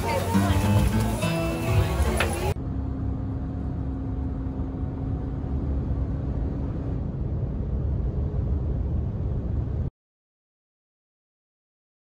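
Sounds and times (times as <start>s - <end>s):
car cabin road and engine rumble: 0.0s - 9.9s
faint hum: 1.7s - 9.9s.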